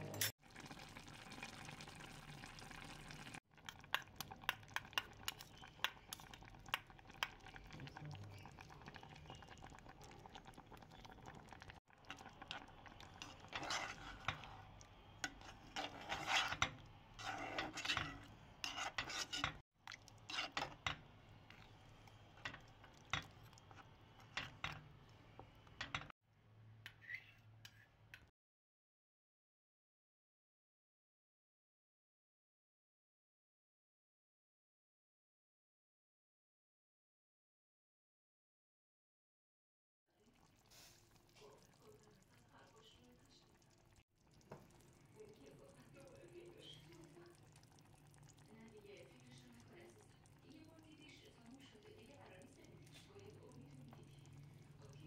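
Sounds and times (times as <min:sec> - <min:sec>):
stew bubbling: 0:00.4 - 0:26.1, 0:40.2 - 0:55.0
metal spoon scraping a pot: 0:12.1 - 0:24.9, 0:26.9 - 0:28.2.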